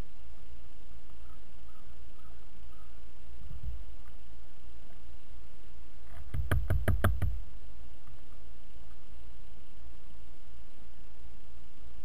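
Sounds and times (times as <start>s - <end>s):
woodpecker beak taps: 6.1s - 7.4s.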